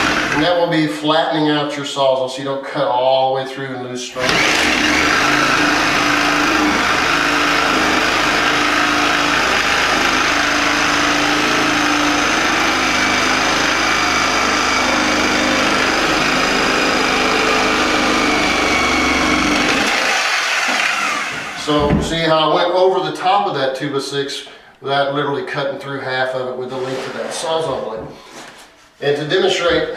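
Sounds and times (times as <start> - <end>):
reciprocating saw cutting: 0.0 - 0.4, 4.2 - 21.6.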